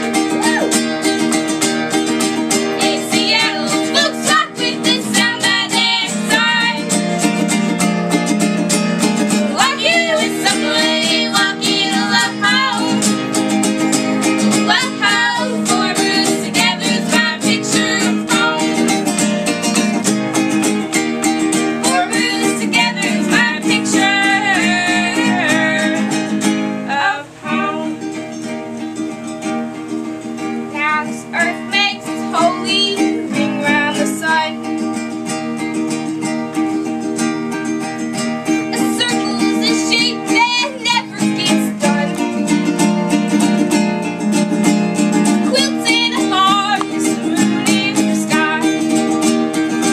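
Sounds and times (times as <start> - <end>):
acoustic guitar: 0.0 - 49.9
strummed ukulele: 0.0 - 49.9
two people singing: 2.2 - 19.9, 21.6 - 28.2, 30.8 - 34.7, 38.6 - 42.6, 45.0 - 49.9.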